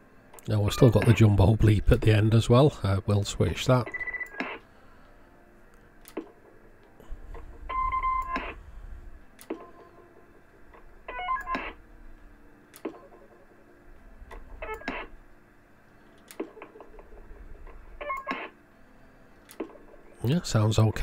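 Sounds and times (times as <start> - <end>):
electronic roger beeps: 3.8 - 4.6, 7.7 - 8.6.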